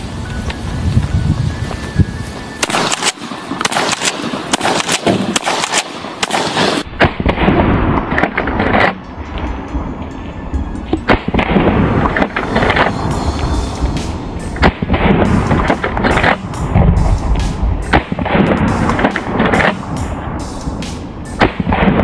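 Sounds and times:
shotgun blasts: 2.6 - 9.0, 14.6 - 16.5, 17.4 - 20.0, 21.4 - 22.0.

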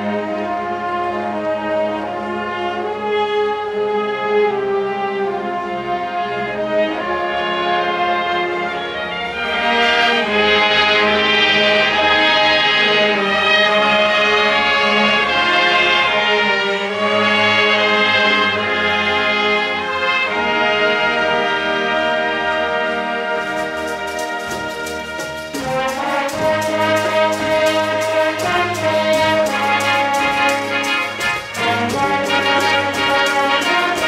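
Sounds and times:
orchestra playing film music: 0.0 - 34.0.

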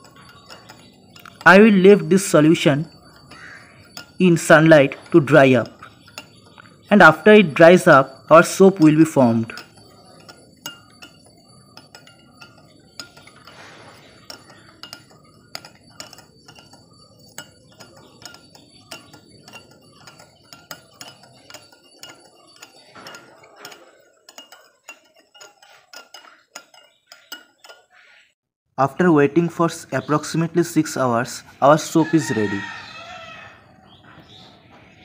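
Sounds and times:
spoon clinking against glass bowl: 0.0 - 28.0.

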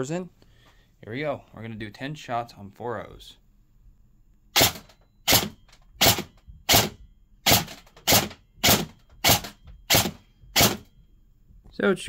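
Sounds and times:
airsoft rifle single shots: 4.6 - 6.9.

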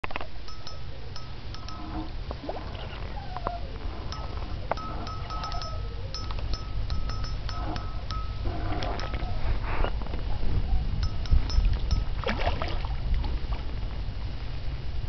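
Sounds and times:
fishing reel clicking and whirring: 0.5 - 2.2, 4.0 - 9.4, 11.0 - 12.2.

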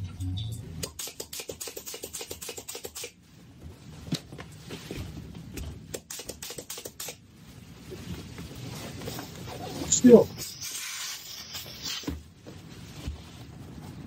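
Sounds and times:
air tool clicking rapidly: 0.8 - 3.2, 5.9 - 7.2, 10.4 - 12.1.

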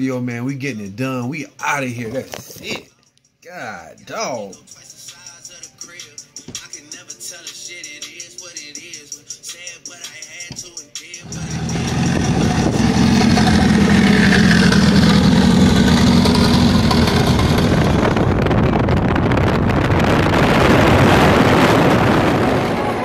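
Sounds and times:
car engine running loudly: 11.2 - 23.0.

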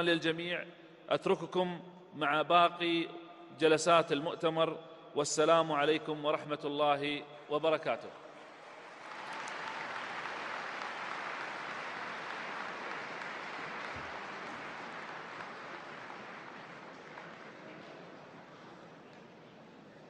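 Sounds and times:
large audience applauding: 8.4 - 18.8.

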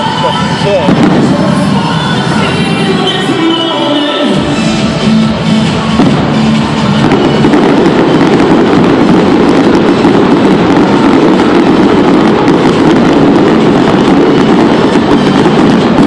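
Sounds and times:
fireworks booming and crackling: 0.0 - 16.0.

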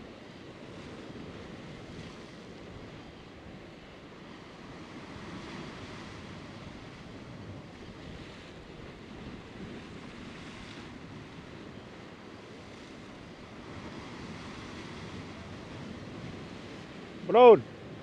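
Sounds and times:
surf breaking over rocks: 12.6 - 18.0.

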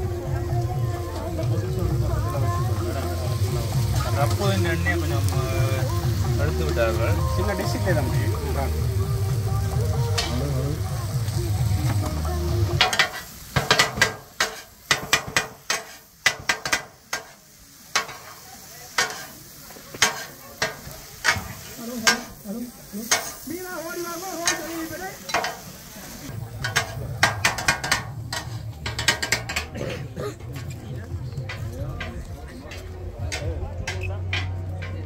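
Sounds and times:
food sizzling: 0.0 - 35.0
metal spatulas clanking on griddle: 12.8 - 22.4, 23.0 - 23.5, 24.4 - 25.7, 26.5 - 35.0.

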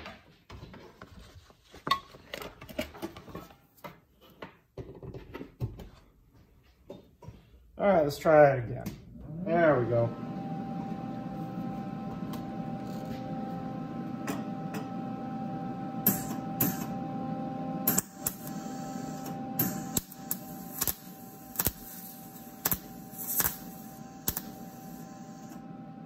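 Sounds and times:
welder humming: 9.2 - 26.0
welding arc crackling: 16.0 - 16.9, 17.8 - 25.6.

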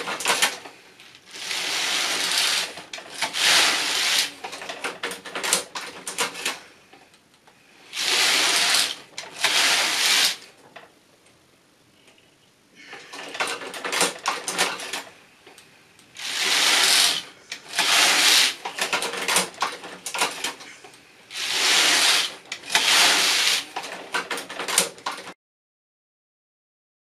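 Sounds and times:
knitting machine clicks: 0.0 - 6.6, 7.9 - 10.5, 13.0 - 15.6, 16.2 - 20.7, 21.3 - 25.4
knitting machine carriage sliding: 0.0 - 7.1, 7.8 - 10.9, 12.9 - 25.4.

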